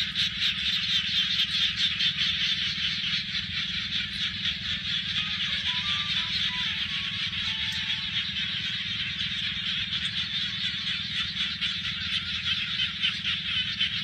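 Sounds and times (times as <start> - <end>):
chorus of frogs calling: 0.0 - 14.0.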